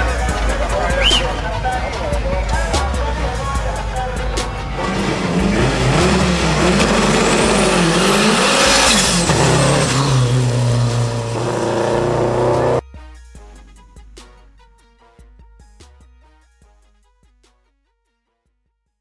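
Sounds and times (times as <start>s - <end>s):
drag car engine accelerating: 2.5s - 12.8s.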